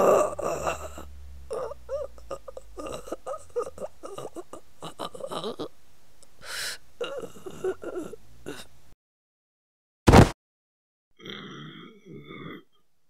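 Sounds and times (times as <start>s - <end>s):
voice making wordless cries: 0.0s - 5.7s.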